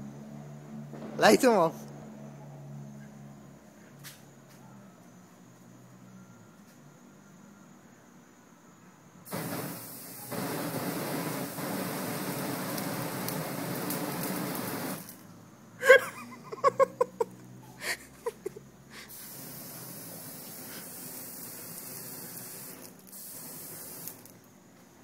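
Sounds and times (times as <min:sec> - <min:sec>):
burning spray jet rushing: 0:09.3 - 0:15.2, 0:19.0 - 0:24.4.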